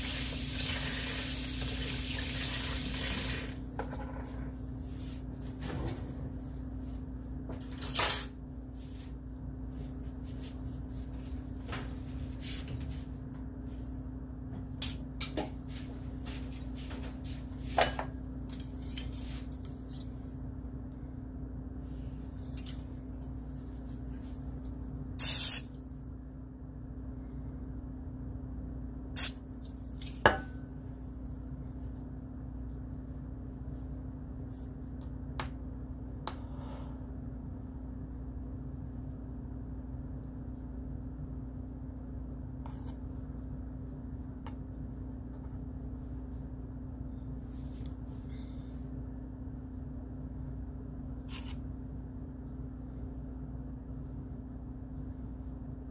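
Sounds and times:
kitchen room hum: 0:00.0 - 0:55.9
short hiss: 0:25.2 - 0:25.7.

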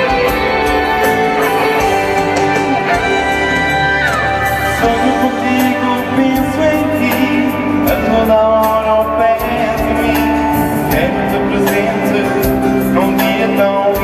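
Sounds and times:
backing music: 0:00.0 - 0:14.0
man singing into microphone: 0:04.8 - 0:14.0.

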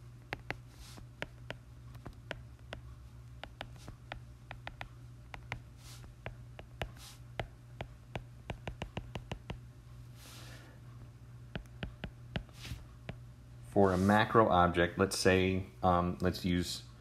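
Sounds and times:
low steady hum: 0:00.0 - 0:17.0
stylus tapping on glass screen: 0:00.3 - 0:00.6, 0:01.2 - 0:09.6
stylus scratching strokes: 0:00.4 - 0:01.6, 0:03.4 - 0:04.8, 0:05.4 - 0:07.3, 0:12.4 - 0:12.9.

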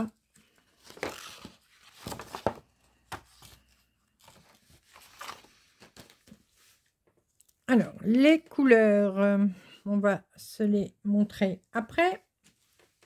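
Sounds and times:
paper sheets rustling: 0:00.4 - 0:07.0.

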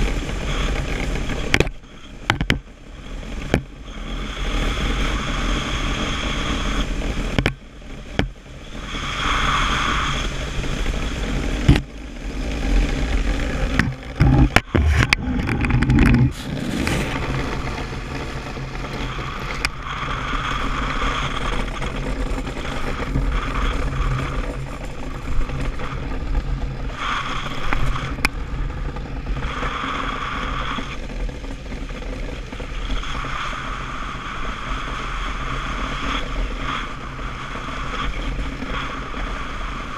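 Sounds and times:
hiss: 0:03.4 - 0:07.4, 0:08.6 - 0:11.7, 0:16.3 - 0:26.0, 0:26.8 - 0:39.9
steel runners scraping over ice: 0:08.2 - 0:39.9.

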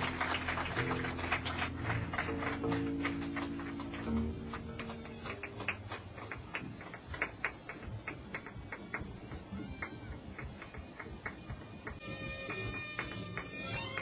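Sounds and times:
percussion clicks and taps: 0:02.7 - 0:14.0.

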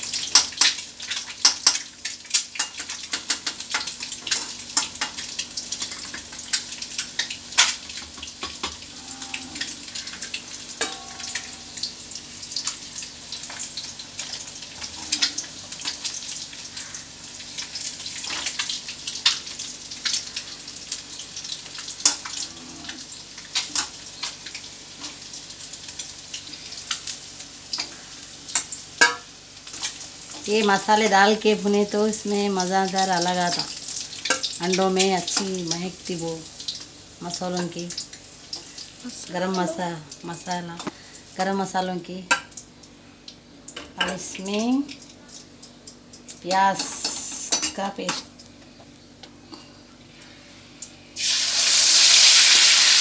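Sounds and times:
eggs sizzling in hot oil: 0:00.0 - 0:45.6, 0:46.2 - 0:48.4, 0:50.0 - 0:53.0.

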